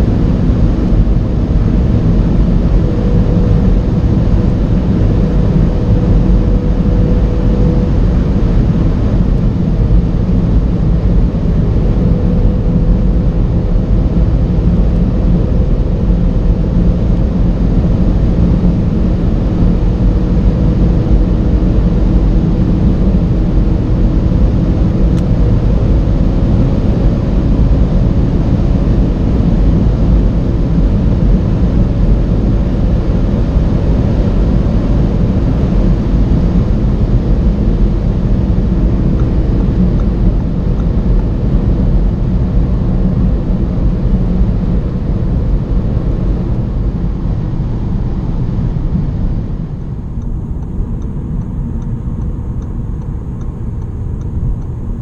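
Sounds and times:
car engine at high revs: 0:00.0 - 0:55.0
wind and road roar: 0:00.0 - 0:55.0.

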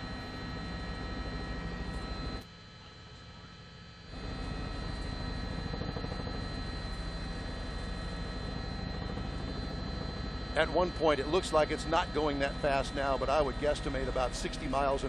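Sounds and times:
helicopter engine and rotor drone: 0:00.0 - 0:15.0.

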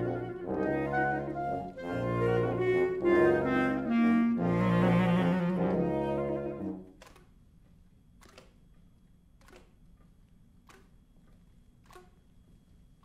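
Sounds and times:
woodwind quintet playing held notes: 0:00.0 - 0:06.8.

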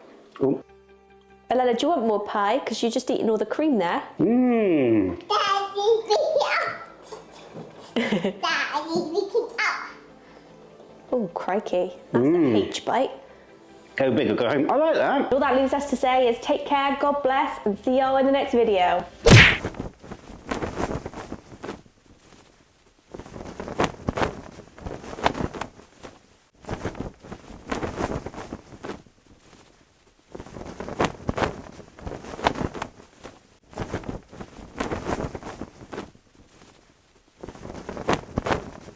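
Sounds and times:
flag flapping in wind: 0:19.5 - 0:38.9.

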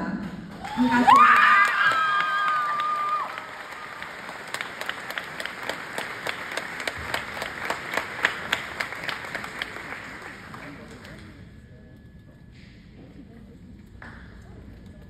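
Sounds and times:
audience applauding: 0:00.5 - 0:11.4.

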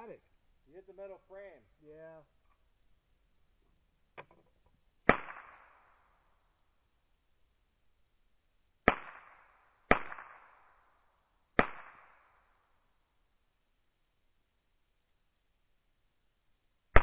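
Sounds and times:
rifle shots with echo: 0:05.1 - 0:06.0, 0:08.9 - 0:10.8, 0:11.6 - 0:12.4.

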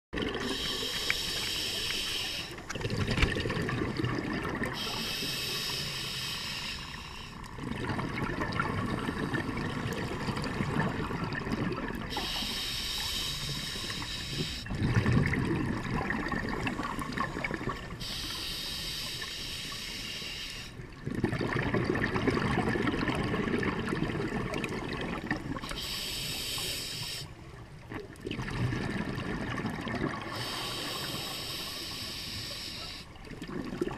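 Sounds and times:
regulator inhale hiss: 0:00.4 - 0:02.7, 0:04.8 - 0:07.5, 0:12.1 - 0:14.7, 0:16.6 - 0:20.8, 0:25.6 - 0:27.4, 0:30.3 - 0:33.2
exhaust bubbles: 0:02.7 - 0:04.8, 0:14.7 - 0:17.9.

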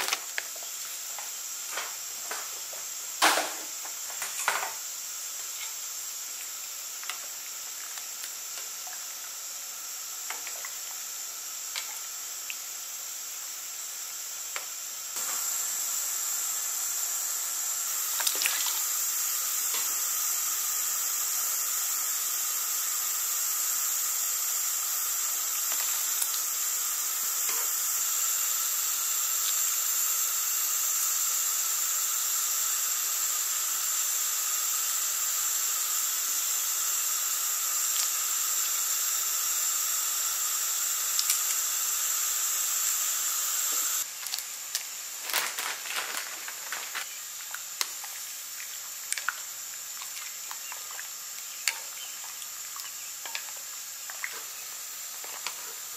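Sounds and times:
shrimp cooking in water hiss: 0:00.0 - 0:55.9
light clicks and splashes: 0:47.4 - 0:54.4.

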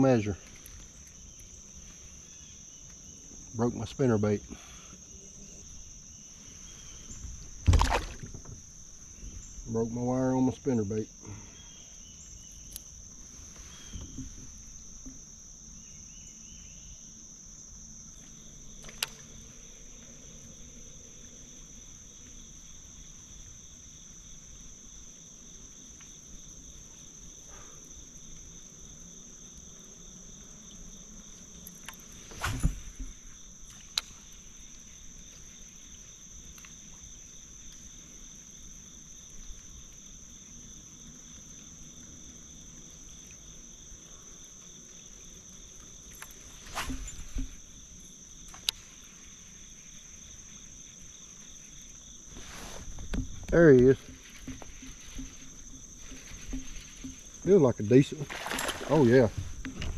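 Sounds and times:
insects singing: 0:00.0 - 0:59.9
click: 0:48.5 - 0:48.8.

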